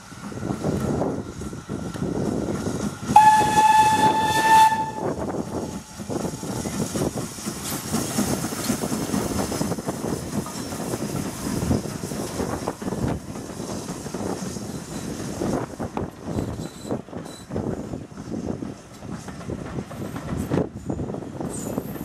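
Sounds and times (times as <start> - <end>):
coaches rumbling over rails: 0.0 - 22.0
steam hissing: 0.0 - 22.0
steam locomotive whistle: 3.1 - 5.4.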